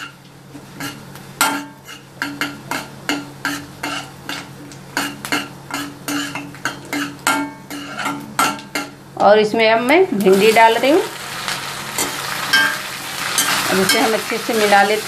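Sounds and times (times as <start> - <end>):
metal spatula scraping a pan: 0.8 - 8.9, 12.0 - 14.9.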